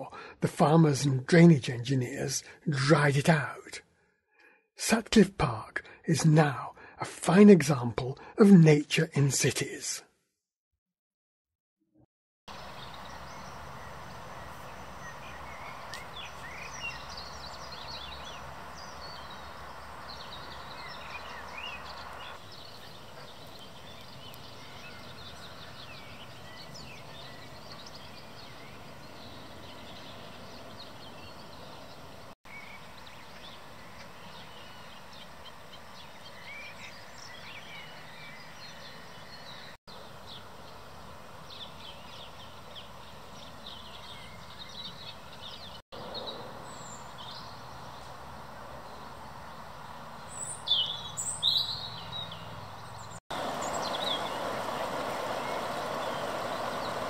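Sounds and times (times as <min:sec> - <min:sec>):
sharp bird calls: 0:12.5 - 0:39.8, 0:50.4 - 0:57.0
small birds chirping: 0:12.5 - 0:48.2, 0:48.9 - 0:57.0.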